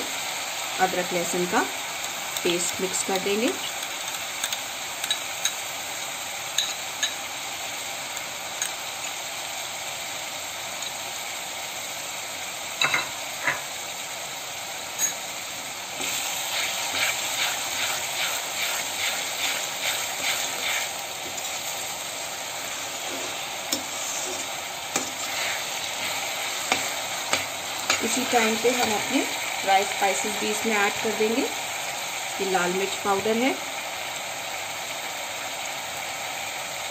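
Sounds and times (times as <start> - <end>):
onions sizzling in oil: 0.0 - 36.9
spatula scraping a pan: 16.0 - 21.8, 22.7 - 28.1.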